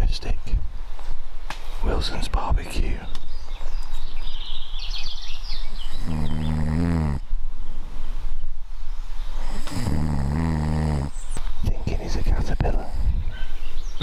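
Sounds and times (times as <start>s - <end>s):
man snoring: 5.9s - 7.2s, 9.4s - 11.2s.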